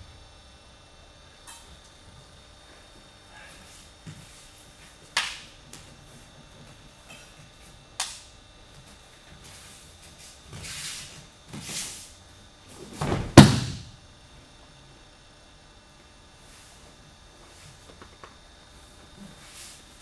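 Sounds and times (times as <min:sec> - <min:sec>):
bodies thudding on mats: 0:12.7 - 0:14.0
slaps on mats: 0:13.0 - 0:14.0.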